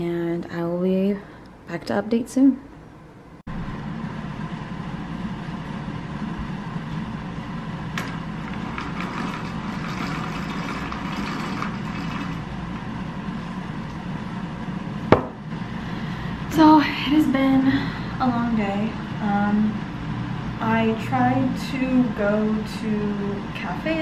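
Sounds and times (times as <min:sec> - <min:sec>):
roller blind rattling: 0:08.0 - 0:12.5.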